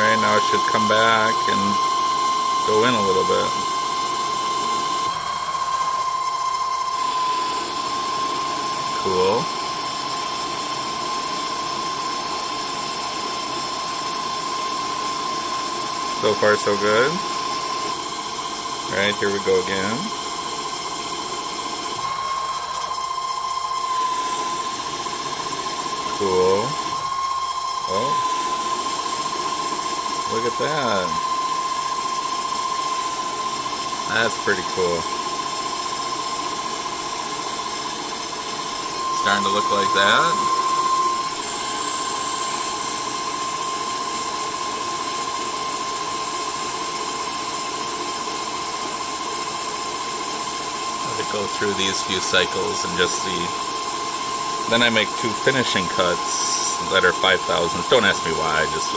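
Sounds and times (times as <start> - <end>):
lathe carriage feeding cutter: 0.0 - 58.9
metal lathe spindle whining: 0.0 - 58.9
high-pitched whine: 22.0 - 33.2, 38.7 - 43.4.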